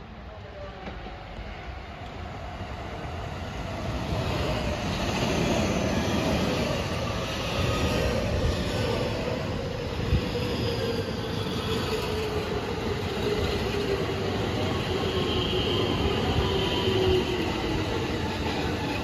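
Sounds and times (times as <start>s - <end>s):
electric train rumble and wheel noise: 0.0s - 19.0s.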